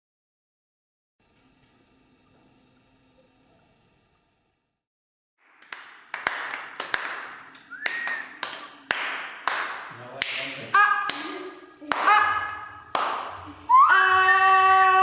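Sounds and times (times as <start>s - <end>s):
whistle-like tone: 7.7s - 8.4s, 13.6s - 15.0s.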